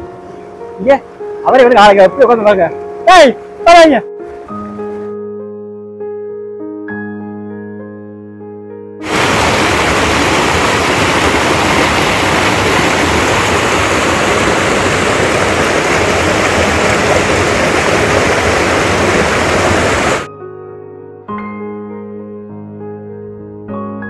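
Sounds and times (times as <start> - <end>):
water rushing over rock ledges: 9.0 - 20.3.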